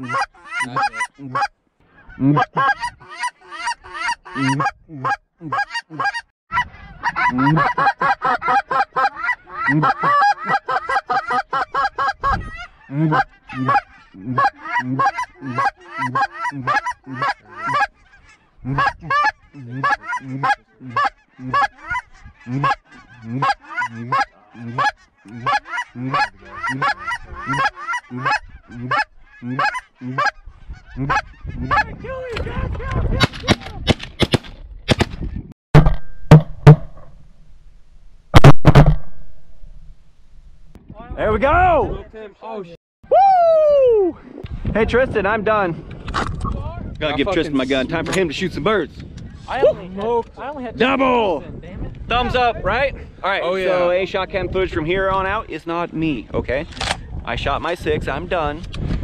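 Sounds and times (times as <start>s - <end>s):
geese honking and clucking: 0.0s - 32.4s.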